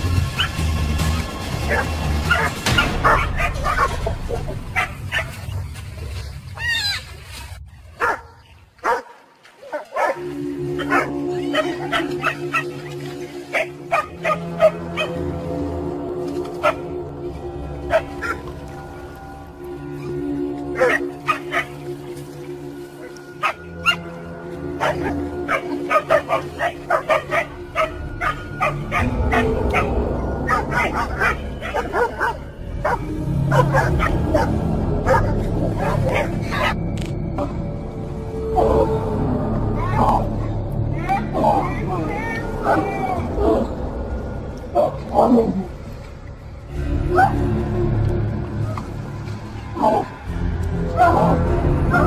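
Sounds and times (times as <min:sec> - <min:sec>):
background music: 0:00.0 - 0:52.0
dogs barking: 0:01.6 - 0:05.5, 0:08.0 - 0:15.6, 0:16.6 - 0:17.0, 0:17.8 - 0:18.6, 0:20.0 - 0:21.9, 0:23.0 - 0:36.8.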